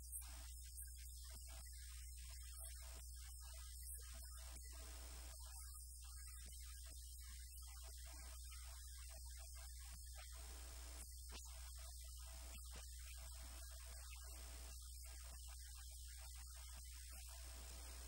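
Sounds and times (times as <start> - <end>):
low electrical mains hum: 17.3 - 18.0.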